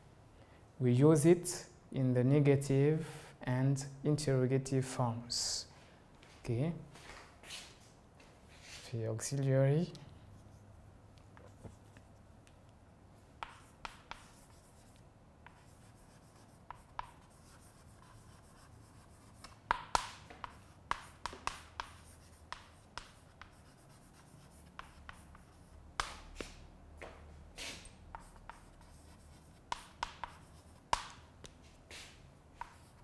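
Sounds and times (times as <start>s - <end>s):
chalk writing on blackboard: 10.2s - 12.3s, 13.4s - 26.6s, 27.6s - 33.0s.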